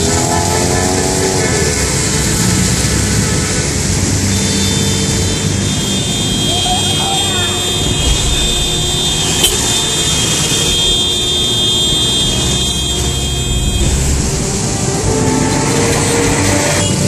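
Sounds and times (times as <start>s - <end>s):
traffic passing on wet road: 0.0s - 17.0s
steady high whine: 7.9s - 17.0s.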